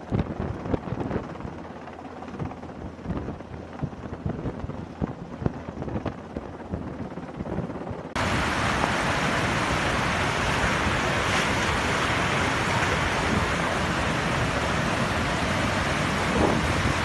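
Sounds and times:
faint helicopter: 0.0 - 17.0
flood torrent rushing: 8.2 - 17.0.

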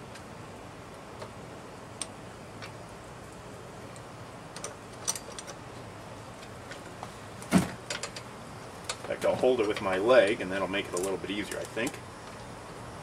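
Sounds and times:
small metal clicks and taps: 7.9 - 12.5.

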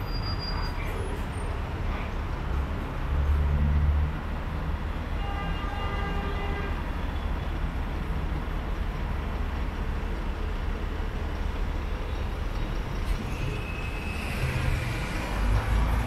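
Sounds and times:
train low rumble: 6.8 - 16.0.

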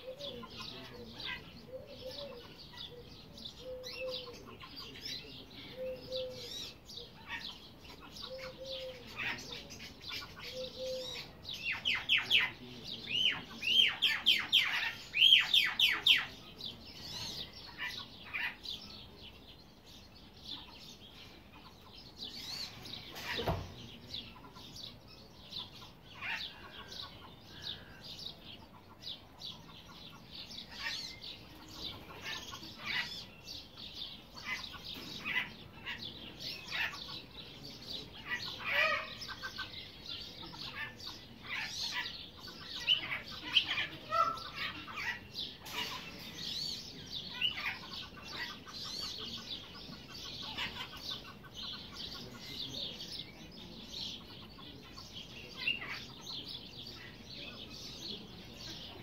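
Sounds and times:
birds calling: 0.0 - 59.0.

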